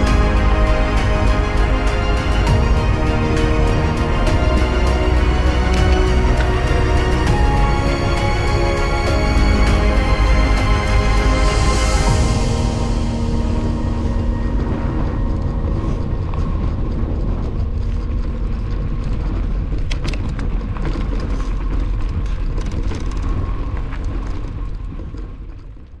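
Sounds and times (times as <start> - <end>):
wind on microphone: 0.0 - 26.0
bike rolling over grass and gravel: 12.4 - 26.0.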